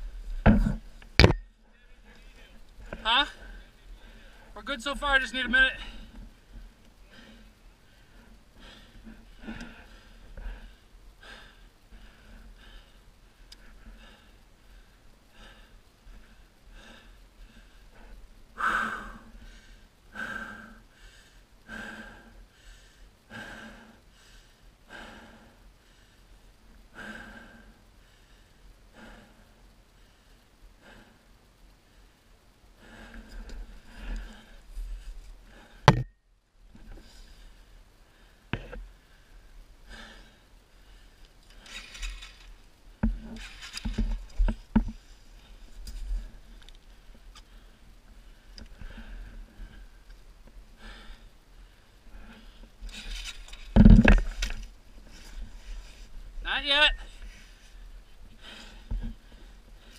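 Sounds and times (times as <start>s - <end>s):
heavy out-of-breath breathing: 1.9s - 4.6s, 5.7s - 35.9s, 36.8s - 59.9s
knocks and taps on motorcycle: 35.9s - 36.1s
rustling: 40.3s - 56.4s.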